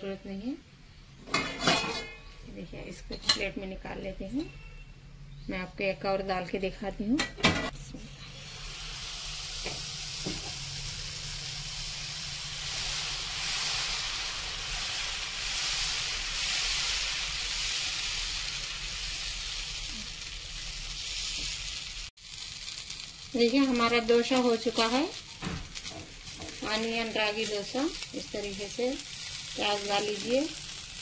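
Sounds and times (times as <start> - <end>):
batter sizzling on griddle: 8.2 - 31.0.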